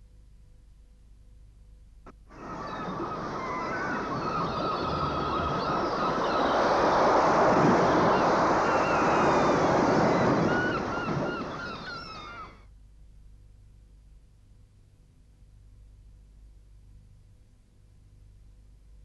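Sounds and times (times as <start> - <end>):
rushing water like surf: 2.3 - 12.5
birds calling: 2.3 - 12.6.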